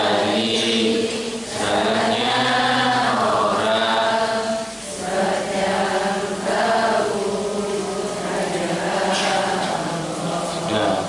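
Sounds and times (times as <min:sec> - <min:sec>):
man chanting devotional song: 0:10.0 - 0:11.0.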